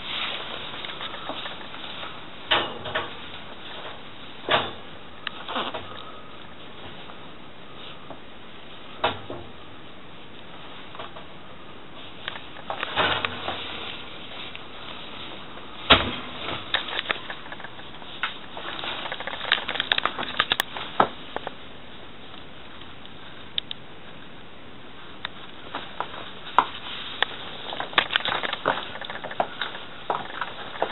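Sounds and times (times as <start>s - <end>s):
rustling handling noise: 0.0s - 4.5s, 10.4s - 22.5s, 25.0s - 30.9s.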